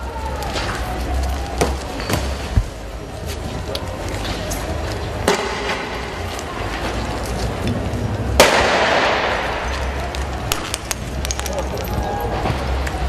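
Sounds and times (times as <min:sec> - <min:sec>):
crowd noise: 0:00.0 - 0:13.0
loud echoing blast: 0:08.4 - 0:09.8.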